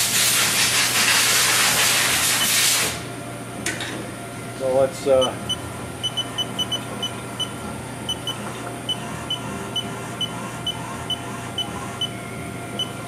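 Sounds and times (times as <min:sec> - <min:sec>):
machine low hum: 0:02.3 - 0:13.0
high electronic beeps: 0:05.2 - 0:07.5, 0:08.1 - 0:12.2.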